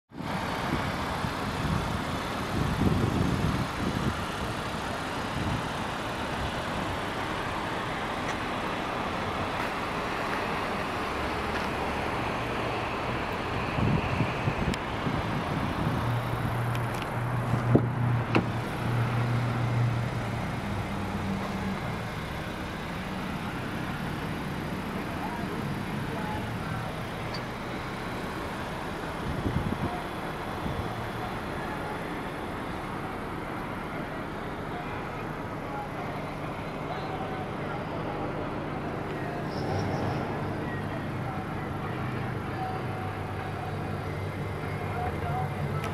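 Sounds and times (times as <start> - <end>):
road traffic noise: 0.1 - 45.9
vehicle engine hum: 0.1 - 45.9.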